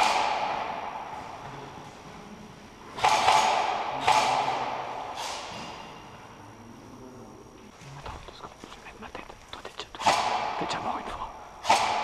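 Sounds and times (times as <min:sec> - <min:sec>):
airsoft gun shots echoing: 0:00.0 - 0:01.3, 0:02.9 - 0:05.9, 0:10.0 - 0:10.7, 0:11.6 - 0:12.0.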